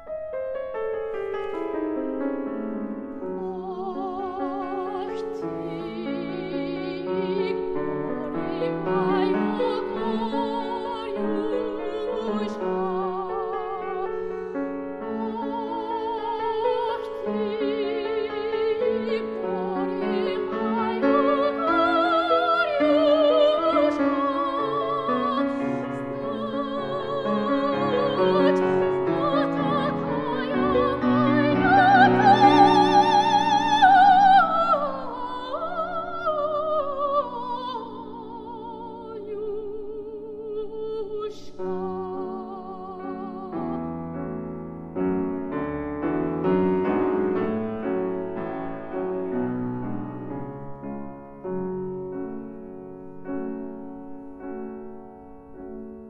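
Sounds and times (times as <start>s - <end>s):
piano accompaniment: 0.0s - 41.0s, 41.6s - 56.0s
soprano singing with vibrato: 3.1s - 44.5s.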